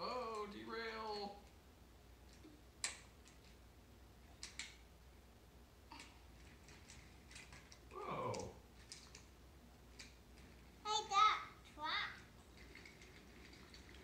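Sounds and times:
toy train cars clicking on track: 0:11.8 - 0:14.0.

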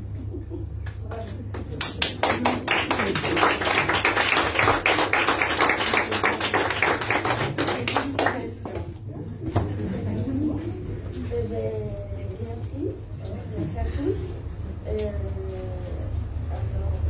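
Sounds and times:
small audience applauding: 0:00.8 - 0:08.7.

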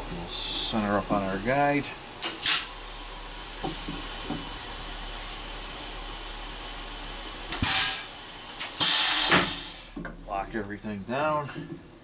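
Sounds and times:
sharp air bursts: 0:02.2 - 0:04.6, 0:07.5 - 0:10.0
compressed air hissing: 0:02.2 - 0:10.0.

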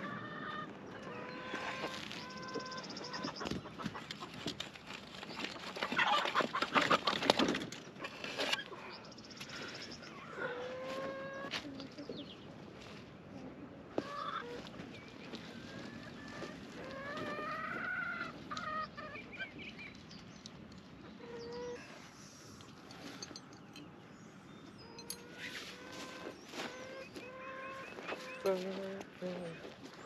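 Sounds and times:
chickens clucking: 0:00.0 - 0:12.2, 0:13.4 - 0:20.0, 0:24.8 - 0:29.5.

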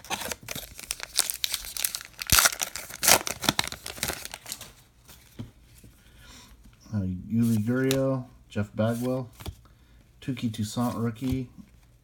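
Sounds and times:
wrapper tearing and crackling: 0:00.0 - 0:04.7
cards being handled: 0:07.4 - 0:08.2, 0:08.8 - 0:09.6, 0:10.6 - 0:11.9.

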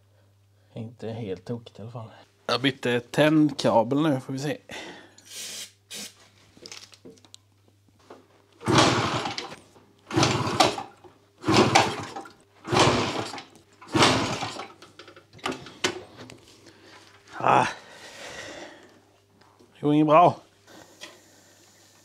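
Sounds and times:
moped engine being cranked: 0:08.6 - 0:16.0.

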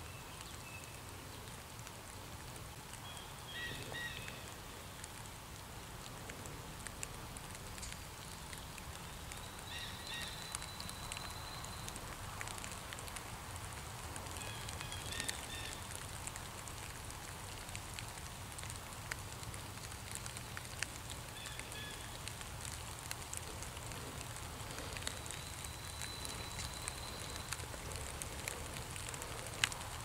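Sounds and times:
light ticks and patters: 0:00.0 - 0:30.0
low hiss and rumble: 0:00.0 - 0:30.0
faint high bird calls: 0:03.0 - 0:04.6, 0:09.0 - 0:12.0, 0:24.6 - 0:29.2.

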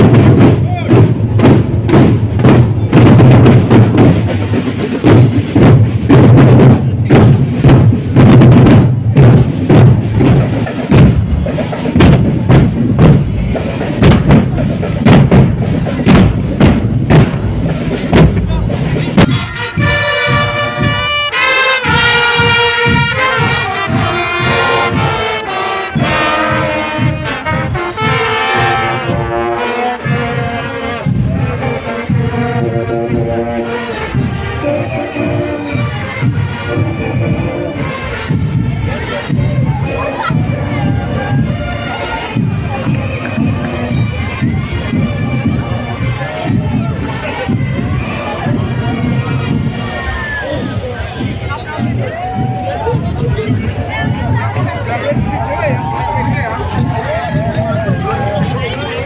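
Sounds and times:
booming bass drum beats: 0:00.0 - 0:59.0
snare and bass drum cadence: 0:00.0 - 0:59.0
brass melody on trumpets: 0:19.2 - 0:49.9.

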